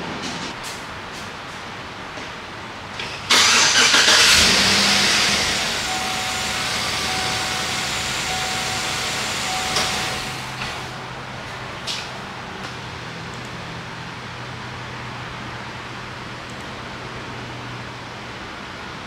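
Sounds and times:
engine cranking and starting: 0:03.0 - 0:10.8
engine idling: 0:03.0 - 0:11.8.

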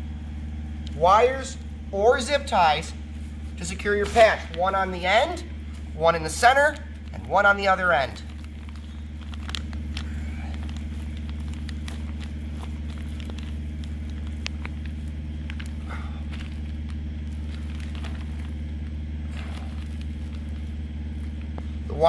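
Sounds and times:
low background hum: 0:00.0 - 0:22.0
wire twisting clicks and crackles: 0:05.3 - 0:21.8.

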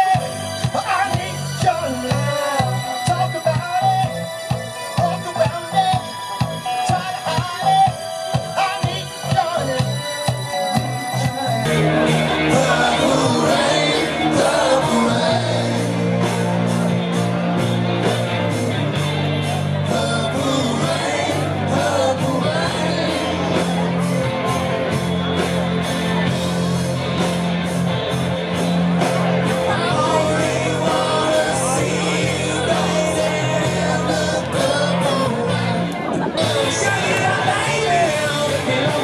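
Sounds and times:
bass guitar: 0:00.0 - 0:39.0
drums: 0:00.0 - 0:39.0
electric guitars: 0:00.0 - 0:39.0
person singing: 0:05.0 - 0:16.9, 0:19.1 - 0:24.6, 0:29.5 - 0:39.0.

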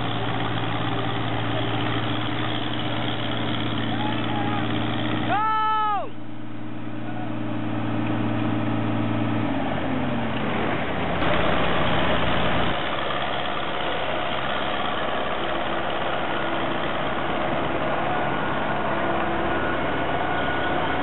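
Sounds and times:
diesel engines running: 0:00.0 - 0:21.0.

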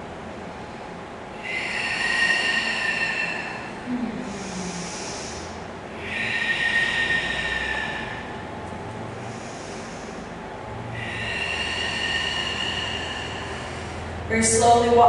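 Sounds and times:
person breathing slowly: 0:01.3 - 0:14.3.

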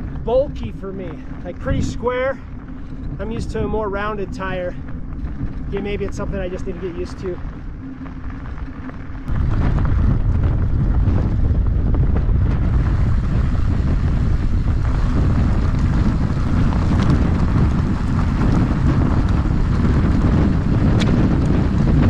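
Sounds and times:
tyres crunching over gravel: 0:00.0 - 0:12.0
wind buffeting camera: 0:00.0 - 0:22.0.

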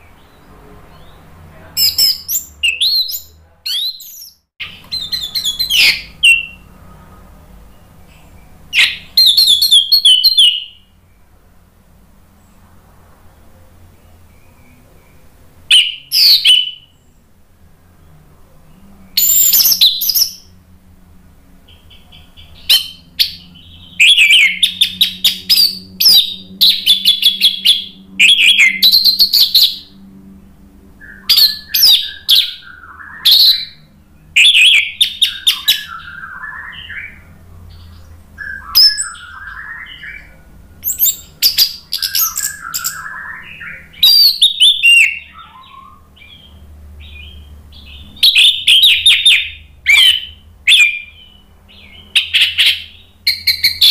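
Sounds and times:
bird singing high notes: 0:00.0 - 0:11.0, 0:19.1 - 0:20.5, 0:31.0 - 0:53.9
low bird warbling: 0:00.0 - 0:11.0, 0:21.7 - 0:53.9.

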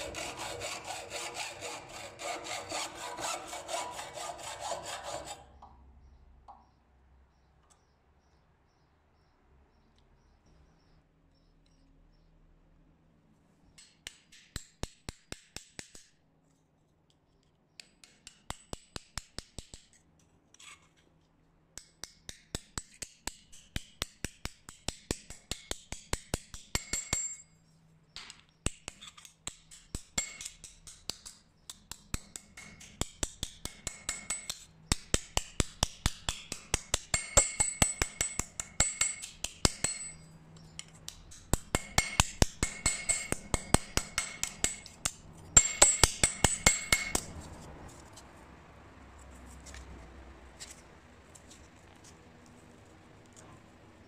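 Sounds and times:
hammer tapping metal tube: 0:13.8 - 0:16.1, 0:21.8 - 0:27.5, 0:28.2 - 0:40.2, 0:40.8 - 0:47.3.

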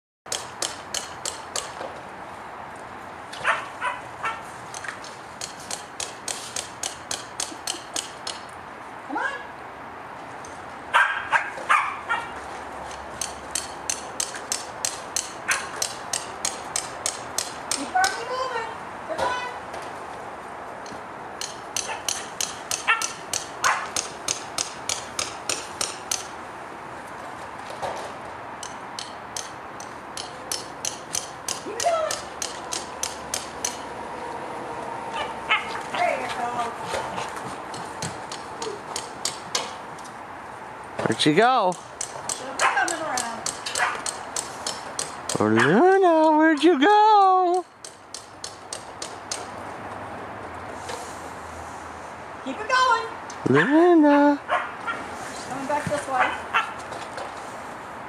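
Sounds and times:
dog barking: 0:03.4 - 0:04.4, 0:10.9 - 0:12.4, 0:15.5 - 0:15.8, 0:22.8 - 0:23.9, 0:35.1 - 0:35.9, 0:42.6 - 0:42.9, 0:43.8 - 0:44.0, 0:45.6 - 0:45.8, 0:54.5 - 0:55.0, 0:56.2 - 0:56.8.

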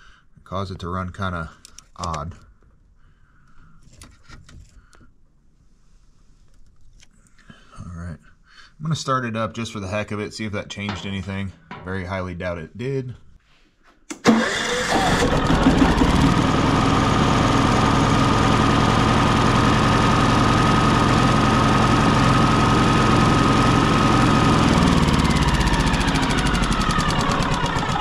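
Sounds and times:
generator engine running: 0:14.2 - 0:28.0
generator whine: 0:14.2 - 0:28.0.

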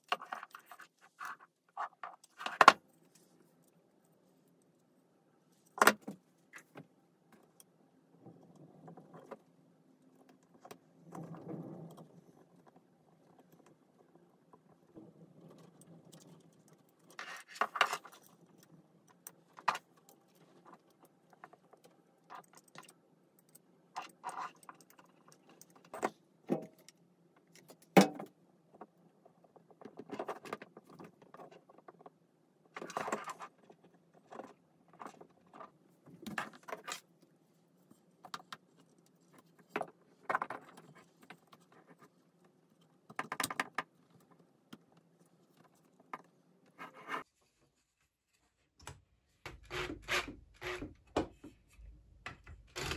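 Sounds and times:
small parts clicking and rustling: 0:05.6 - 0:47.0.

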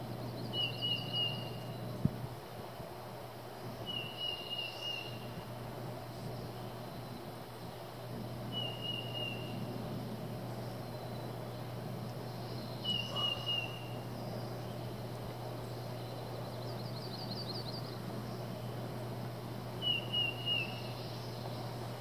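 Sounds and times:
steady low hum: 0:00.0 - 0:22.0
short high bird call: 0:12.8 - 0:14.0.

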